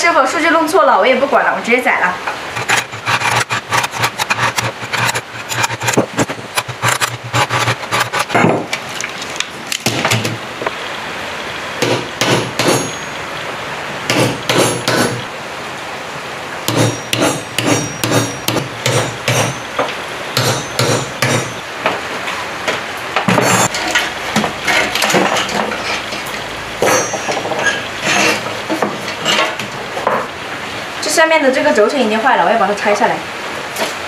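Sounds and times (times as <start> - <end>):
hammer striking steel chisel: 11.8 - 13.1, 14.1 - 15.2, 16.7 - 21.6, 26.8 - 28.4.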